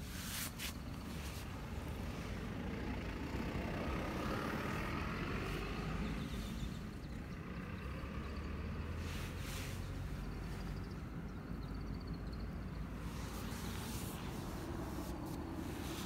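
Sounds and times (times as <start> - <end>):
traffic rumble: 0.0 - 16.0
vehicle passing: 1.2 - 16.0.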